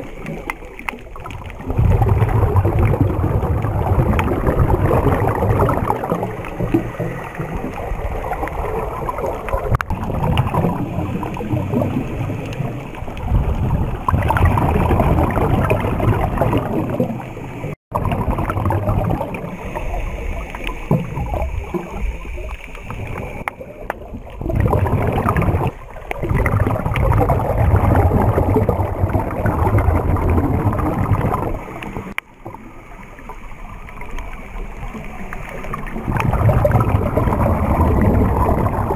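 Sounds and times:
muffled underwater rushing and bubbling: 0:00.0 - 0:38.9.

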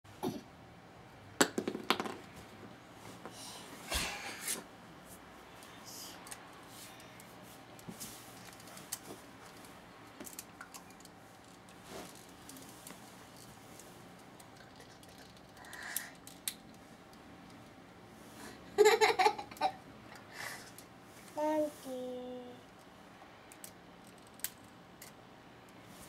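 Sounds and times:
soft rustling: 0:11.2 - 0:14.2.

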